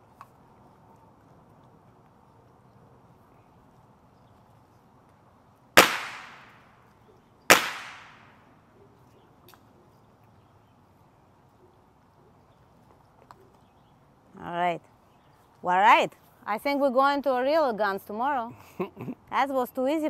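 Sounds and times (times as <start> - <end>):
pistol shots with echo: 5.8 - 6.6, 7.5 - 8.3.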